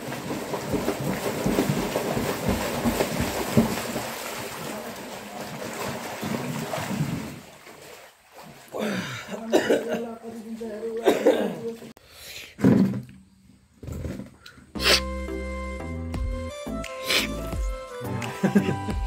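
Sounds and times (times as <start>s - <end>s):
water splashing in a pool: 0.0s - 12.0s.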